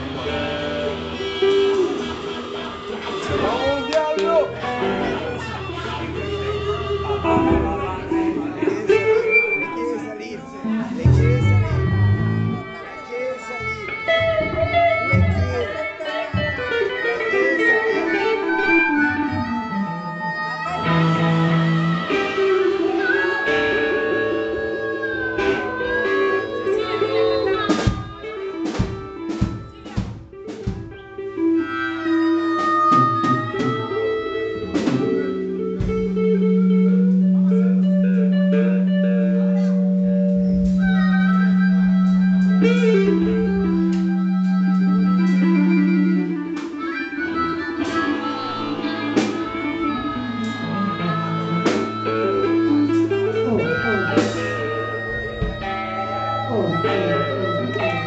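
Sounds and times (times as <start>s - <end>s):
blues-rock band playing: 0.0s - 58.0s
long held low note: 11.0s - 12.8s.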